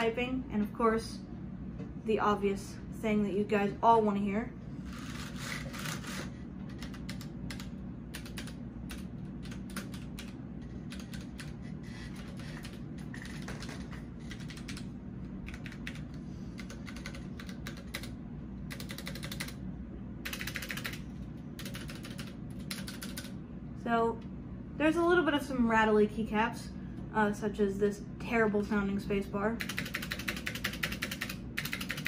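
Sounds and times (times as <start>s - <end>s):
mechanical keyboard typing: 5.2s - 11.6s, 12.2s - 19.6s, 20.2s - 23.4s, 29.6s - 32.0s.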